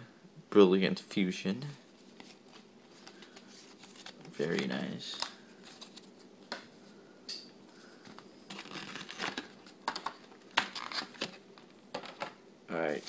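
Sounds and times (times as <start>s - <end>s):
cards and wrappers crinkling: 2.0s - 6.3s, 8.0s - 11.7s.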